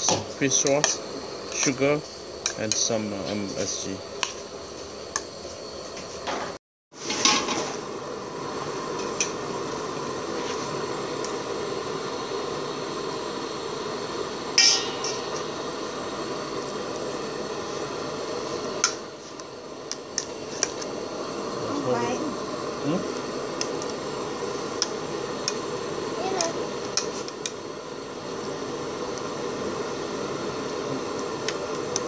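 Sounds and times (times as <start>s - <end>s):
steady hiss: 0.0s - 6.4s, 7.0s - 32.0s.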